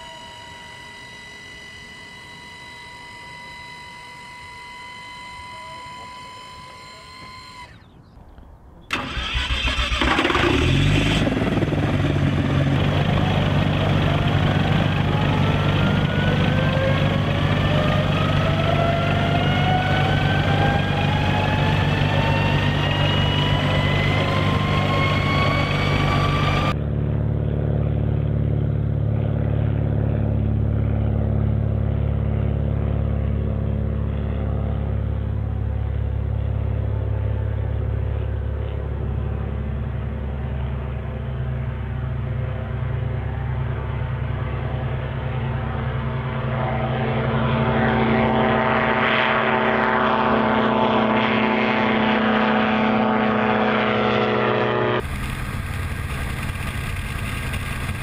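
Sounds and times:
dull engine drone: 0:00.0 - 0:58.0
engine whine climbing in pitch: 0:00.0 - 0:58.0
engine starting: 0:06.4 - 0:08.0, 0:08.9 - 0:11.8.

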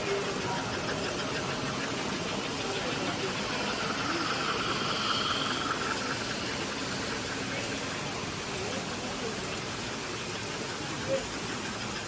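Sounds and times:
indistinct voices: 0:00.0 - 0:12.0
faint high whine: 0:02.2 - 0:09.0.

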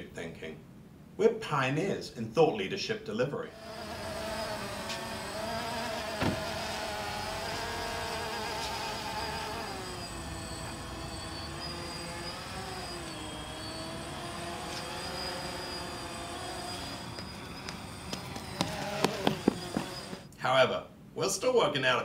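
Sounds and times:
drone propellers buzzing: 0:03.5 - 0:20.3.

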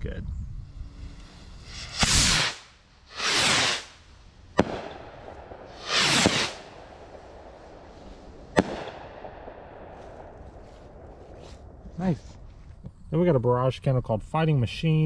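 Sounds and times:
skyrockets launching with hiss: 0:00.5 - 0:10.2
rockets bursting with sharp bangs: 0:00.8 - 0:12.1.

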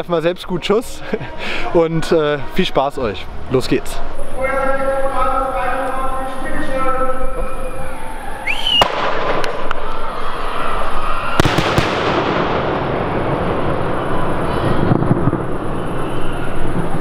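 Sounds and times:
firework crackling: 0:08.6 - 0:17.0
firework shells bursting: 0:08.7 - 0:09.8, 0:11.4 - 0:16.2.

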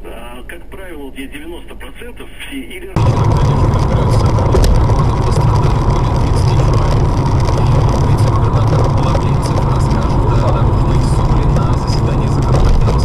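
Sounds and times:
faint steady whine: 0:00.0 - 0:13.0
car engine rumble and road noise: 0:03.0 - 0:13.0.

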